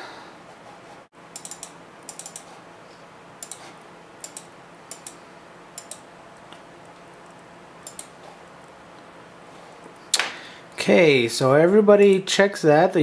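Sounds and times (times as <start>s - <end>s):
faint steady hum: 0.0s - 13.0s
computer mouse clicks: 1.3s - 2.5s, 3.4s - 5.2s, 5.8s - 6.1s, 7.2s - 8.2s.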